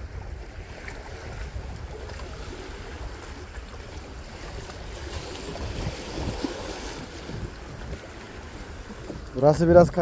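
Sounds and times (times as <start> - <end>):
waves washing against rocks: 0.0 - 10.0
wind buffeting microphone: 0.0 - 10.0.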